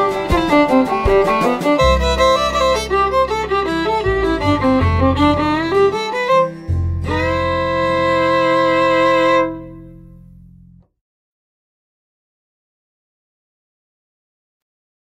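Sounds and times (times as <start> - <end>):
background music melody: 0.0 - 10.9.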